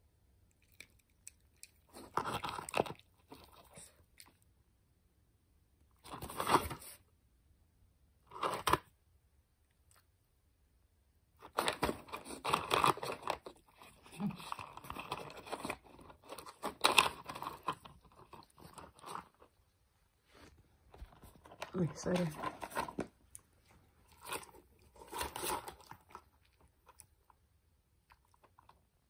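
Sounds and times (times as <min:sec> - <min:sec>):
puppy chewing on cardboard: 0:11.5 - 0:19.5.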